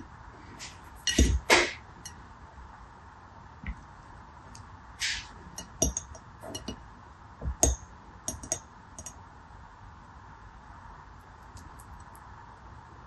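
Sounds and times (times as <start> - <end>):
short hiss: 5.0 - 5.4.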